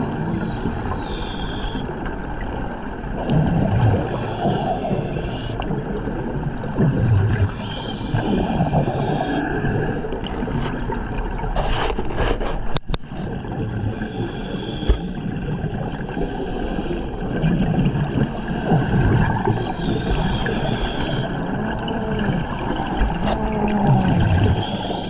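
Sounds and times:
scraping underwater: 0.0 - 25.0
underwater mechanical drone: 0.0 - 25.0
bubbling underwater: 2.5 - 5.0, 5.7 - 11.5, 15.0 - 25.0.

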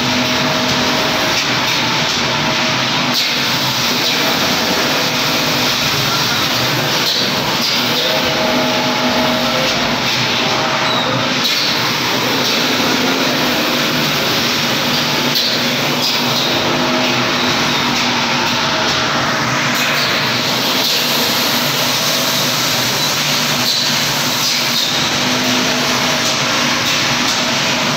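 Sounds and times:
constant machine hums: 0.0 - 27.9
loud machine din: 0.0 - 27.9.

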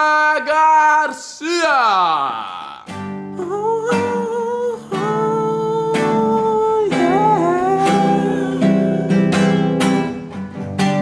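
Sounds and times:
man singing wordless note: 0.0 - 10.3
classical guitar strummed: 2.7 - 11.0.

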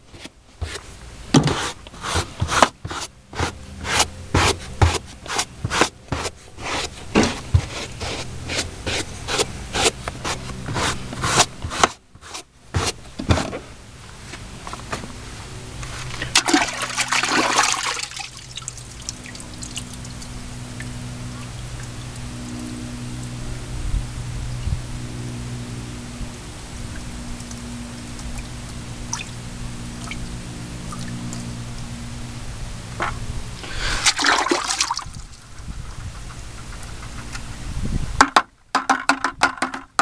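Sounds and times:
brush scrubbing carpet: 1.4 - 13.5.

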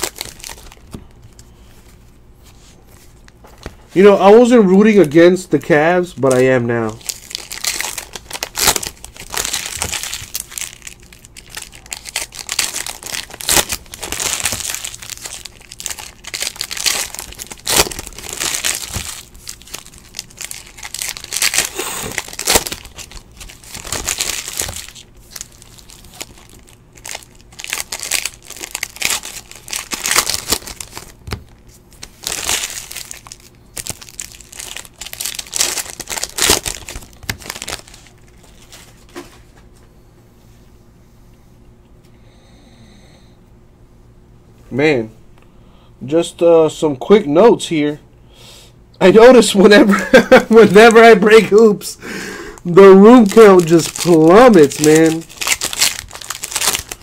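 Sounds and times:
foil wrappers tearing and crinkling: 0.0 - 1.0, 4.0 - 39.3, 50.0 - 51.7, 52.6 - 57.0.

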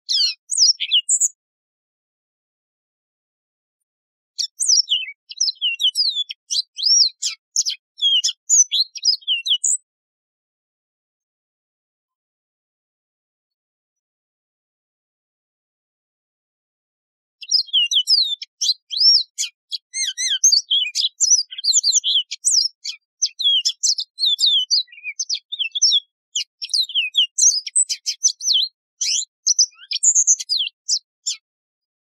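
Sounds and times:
bird singing high-pitched song: 0.0 - 1.4, 4.4 - 9.9, 17.4 - 31.5.

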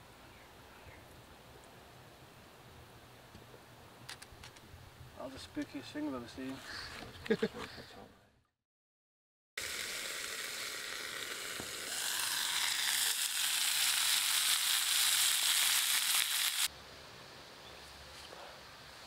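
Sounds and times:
sausages sizzling in frying pan: 9.6 - 16.7.

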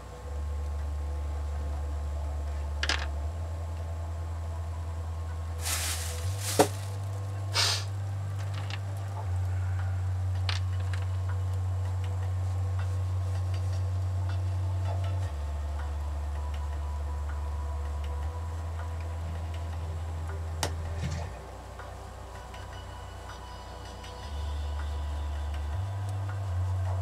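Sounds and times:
low droning bass: 0.0 - 27.0.

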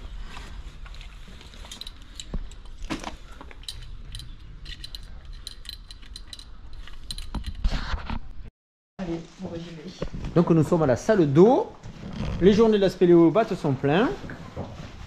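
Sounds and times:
small metal gear clinking: 3.5 - 7.6.

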